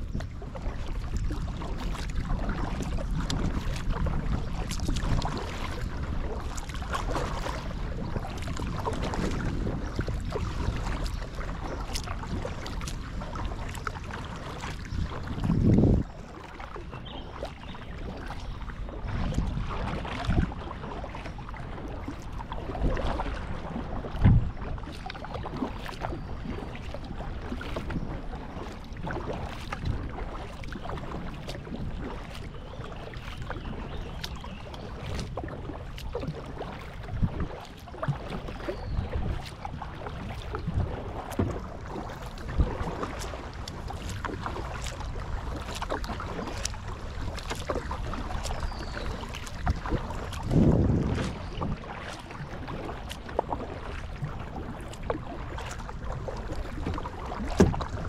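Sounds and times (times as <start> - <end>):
paddle blades splashing: 0.0 - 58.0
wind on microphone: 0.0 - 58.0
water dripping and trickling: 41.2 - 55.8.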